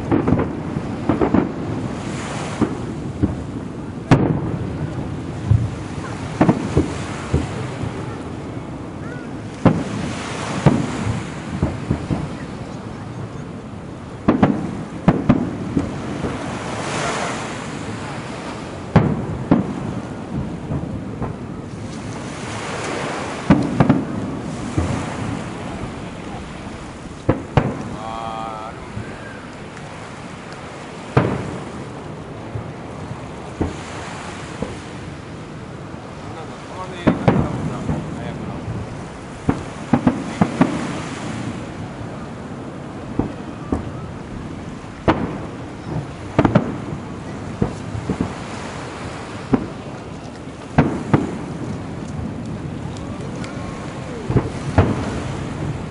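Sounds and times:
firework shells bursting: 0:18.9 - 0:32.6, 0:37.0 - 0:41.8, 0:43.0 - 0:55.9.

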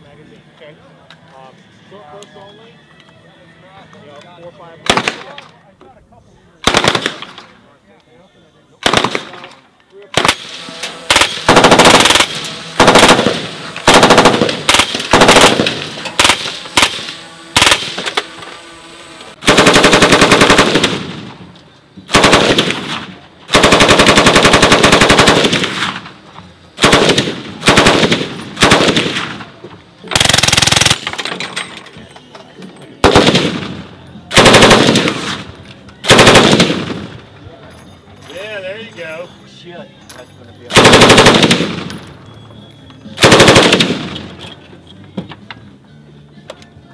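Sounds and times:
automatic gunfire bursts: 0:04.9 - 0:05.3, 0:06.6 - 0:07.4, 0:08.8 - 0:09.4, 0:10.2 - 0:18.2, 0:19.4 - 0:21.4, 0:22.1 - 0:26.0, 0:26.8 - 0:29.4, 0:30.1 - 0:31.1, 0:33.0 - 0:35.4, 0:36.0 - 0:37.1, 0:40.7 - 0:41.9, 0:43.2 - 0:44.4.

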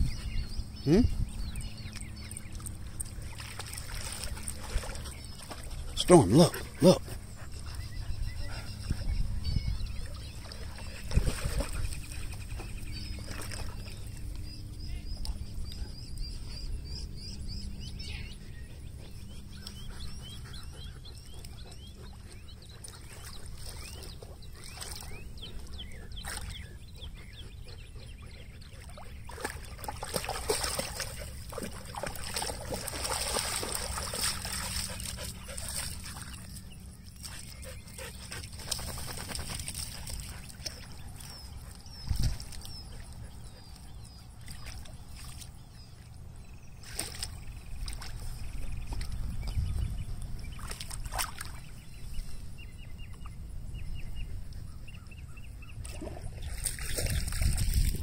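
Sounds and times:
dogs splashing in water: 0:01.5 - 0:16.3, 0:17.1 - 0:52.2, 0:55.7 - 0:58.0.

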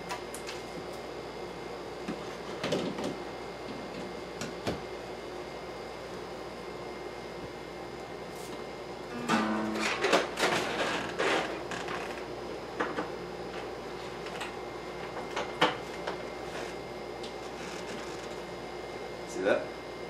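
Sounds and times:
short pitched piano notes: 0:09.1 - 0:10.0.

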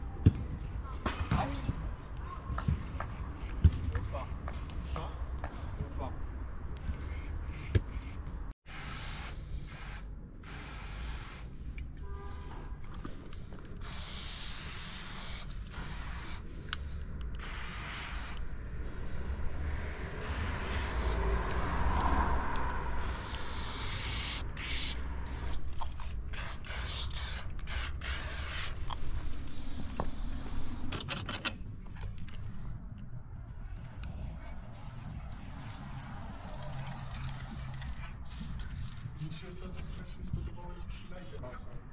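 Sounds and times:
spray paint can hissing: 0:08.7 - 0:11.5, 0:13.0 - 0:18.5, 0:20.2 - 0:22.1, 0:22.9 - 0:31.0, 0:34.8 - 0:38.9.

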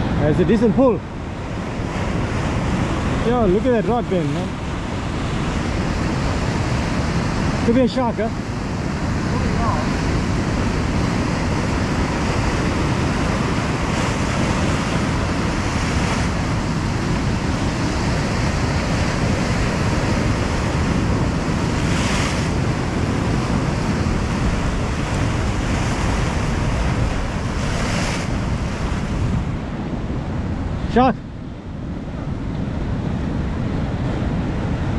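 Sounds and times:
surf washing against rocks: 0:00.0 - 0:31.2
waves breaking: 0:00.0 - 0:34.9
wind buffeting microphone: 0:00.0 - 0:34.9.

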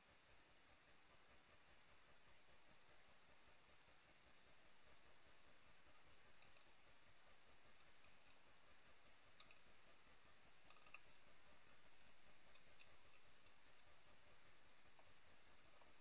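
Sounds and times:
faint hiss: 0:00.0 - 0:16.0
hedgehog chewing food: 0:04.4 - 0:16.0.

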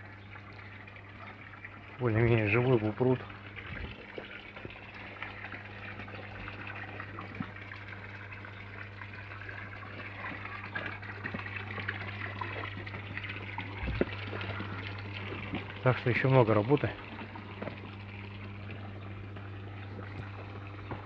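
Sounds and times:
low steady hum: 0:00.0 - 0:21.0
waterfall splashing into pond: 0:09.0 - 0:21.0.

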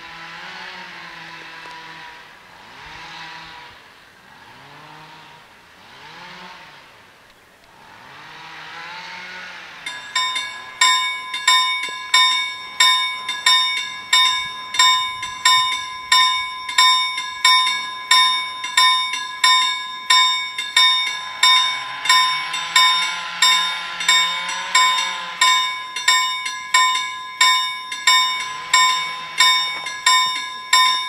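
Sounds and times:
level crossing bells ringing: 0:09.8 - 0:31.0.

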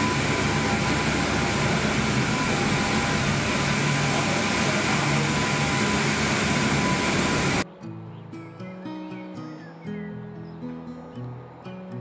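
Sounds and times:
faint steady whine: 0:00.0 - 0:07.6
low hum: 0:00.0 - 0:07.6.

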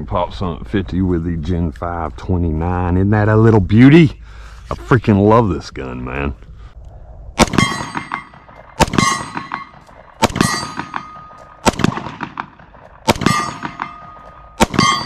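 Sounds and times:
pistol shots: 0:07.4 - 0:15.0
bullet clanging on steel target: 0:07.5 - 0:11.6, 0:12.4 - 0:15.0.

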